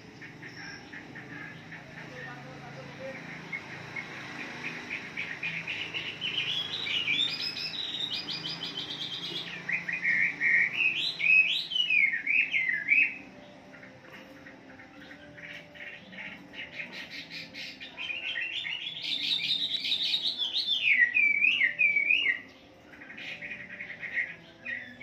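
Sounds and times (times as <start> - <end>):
bird singing whistled phrases: 5.3 - 13.3, 16.9 - 22.6.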